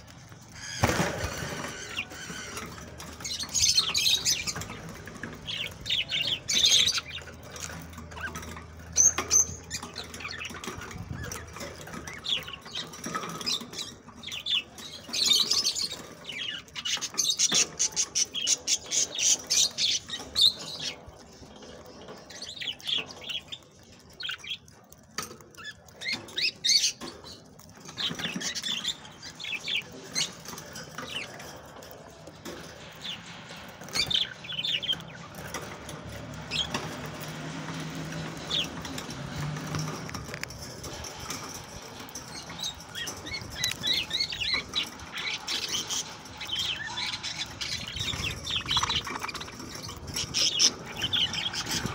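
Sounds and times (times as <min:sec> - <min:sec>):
birds cracking seed: 0:00.0 - 0:51.9
budgerigars chirping: 0:00.5 - 0:08.4, 0:42.3 - 0:51.9.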